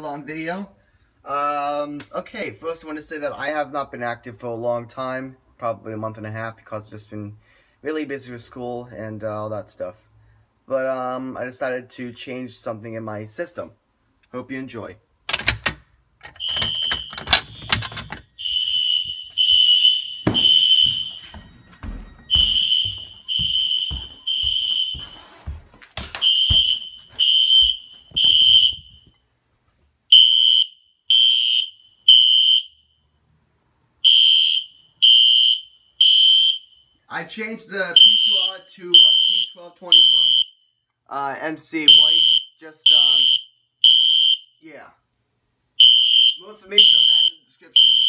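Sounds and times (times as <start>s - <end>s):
clicks and knocks: 15.3s - 18.3s
fire alarm horn blasts: 16.4s - 25.4s, 26.2s - 37.1s, 37.9s - 40.9s, 41.8s - 48.0s.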